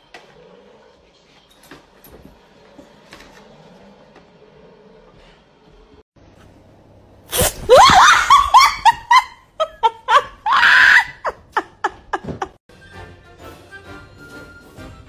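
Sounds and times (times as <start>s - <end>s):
person shrieking and laughing: 7.4s - 12.6s.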